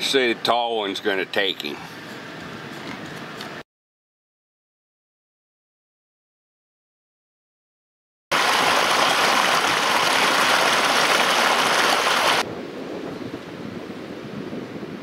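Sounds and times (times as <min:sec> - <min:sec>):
loud steady rushing noise: 0:08.3 - 0:12.5.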